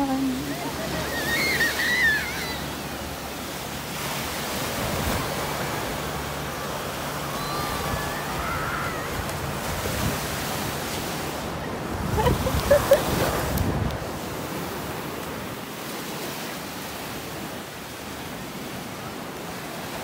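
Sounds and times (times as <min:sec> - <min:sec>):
ocean surf breaking on beach: 0:00.0 - 0:20.0
wind on microphone: 0:07.2 - 0:15.7.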